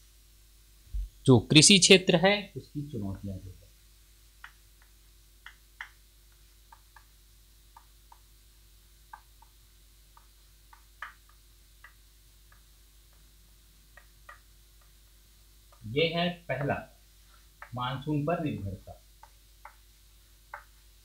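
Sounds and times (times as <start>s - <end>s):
chalk tapping on blackboard: 4.4s - 8.4s, 9.0s - 15.9s, 16.5s - 20.9s.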